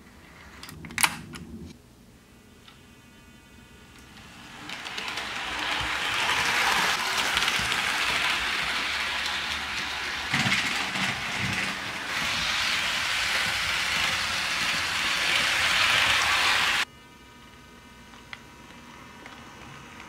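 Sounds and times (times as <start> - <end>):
model train rolling on track: 4.0 - 16.9.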